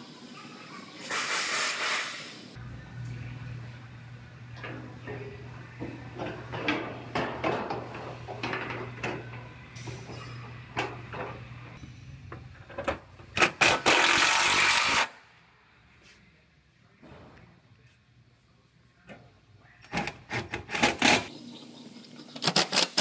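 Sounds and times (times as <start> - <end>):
metal panels and tools clattering: 4.6 - 11.8.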